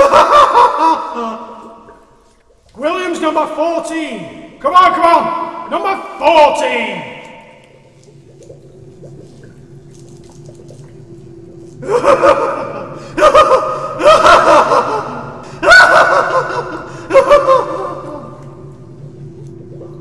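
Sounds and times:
man laughing excitedly: 0:00.0 - 0:01.6, 0:11.8 - 0:18.4
low steady hum: 0:00.0 - 0:20.0.

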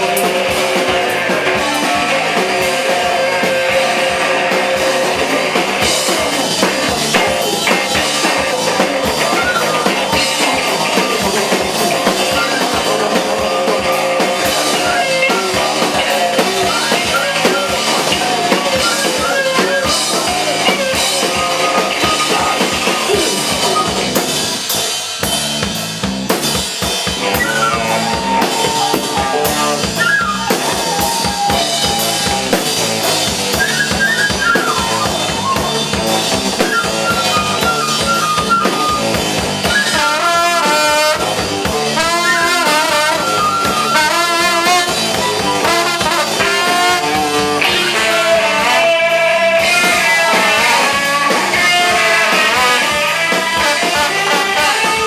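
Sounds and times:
drum kit: 0:00.0 - 0:55.0
guitar: 0:00.0 - 0:55.0
flute playing melody: 0:05.2 - 0:24.1, 0:27.2 - 0:41.3, 0:42.0 - 0:55.0
trombone: 0:39.7 - 0:55.0.

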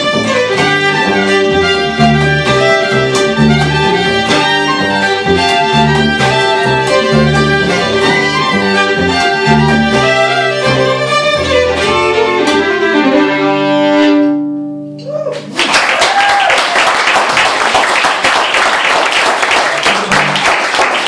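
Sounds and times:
fiddles playing: 0:00.0 - 0:14.7
plucked upright bass: 0:00.0 - 0:15.1.

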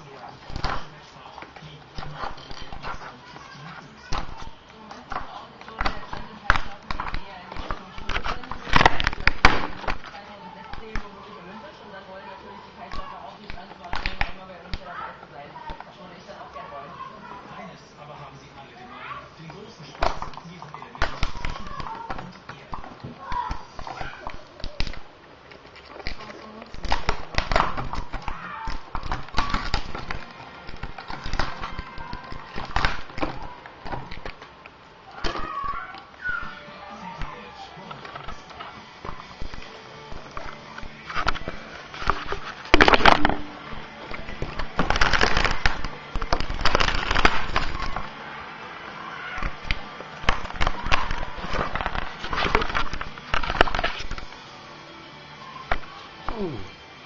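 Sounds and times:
plastic and metal snapping: 0:00.0 - 0:03.1, 0:04.0 - 0:11.1, 0:12.8 - 0:14.9, 0:20.0 - 0:36.6, 0:37.2 - 0:48.2, 0:49.4 - 0:54.4
plastic parts clicking and crackling: 0:00.0 - 0:11.1, 0:12.8 - 0:15.9, 0:19.5 - 0:36.6, 0:37.2 - 0:48.2, 0:49.3 - 0:54.4.

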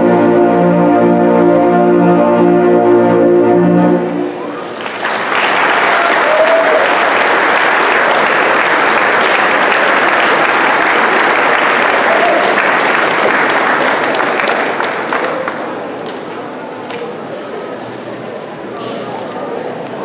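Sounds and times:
audience applauding: 0:04.3 - 0:16.2.

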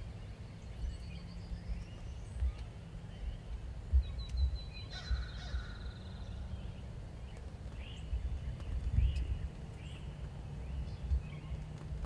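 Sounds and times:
turkeys low drumming pulses: 0:01.7 - 0:06.0.

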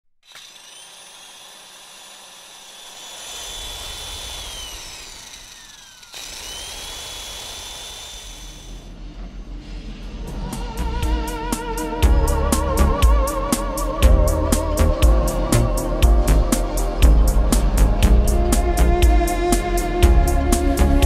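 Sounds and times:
high whining tones: 0:00.2 - 0:08.9.

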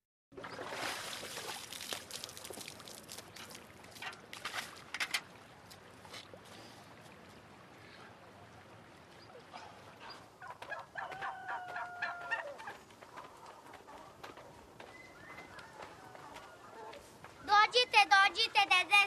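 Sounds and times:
water splashing: 0:00.3 - 0:11.0
fowl clucking: 0:10.0 - 0:14.5.

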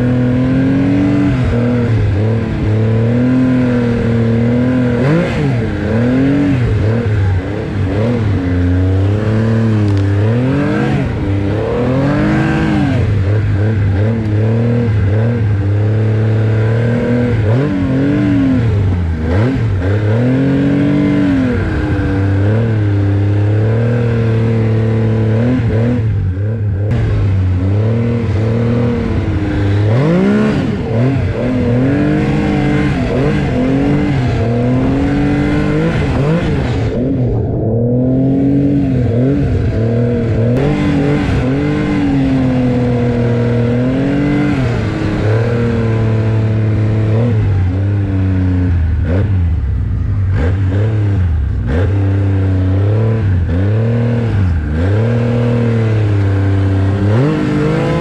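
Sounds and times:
snowmobile engine revving: 0:00.0 - 0:58.0.

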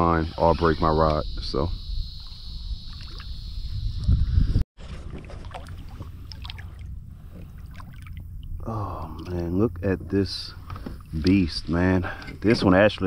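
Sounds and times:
water splashing: 0:02.2 - 0:03.4, 0:04.8 - 0:09.6
low rumble: 0:03.5 - 0:11.7.

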